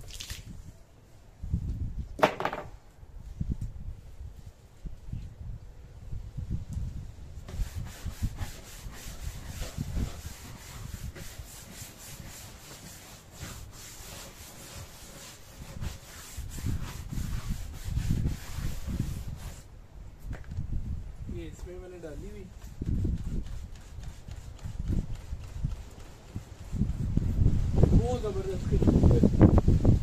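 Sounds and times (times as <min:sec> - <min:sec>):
scrubbing scrapes on dog crate: 0:07.4 - 0:19.7.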